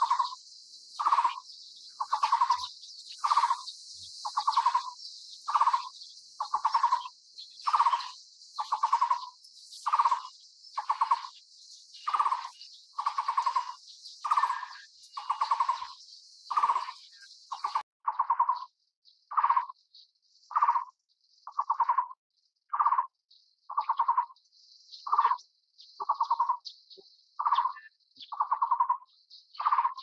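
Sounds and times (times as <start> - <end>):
bird rattling call: 1.0 - 1.4, 2.0 - 11.3, 12.0 - 18.6.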